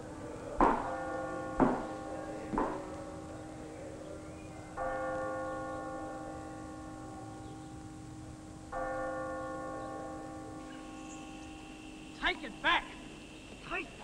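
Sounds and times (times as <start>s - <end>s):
bell ringing: 8.8s - 14.0s.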